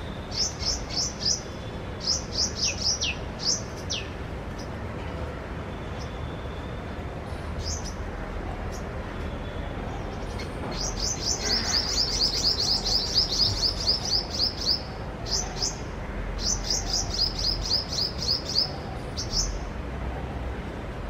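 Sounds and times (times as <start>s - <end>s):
bird chirping rapidly: 0.0s - 4.2s, 10.7s - 15.8s, 16.4s - 19.6s.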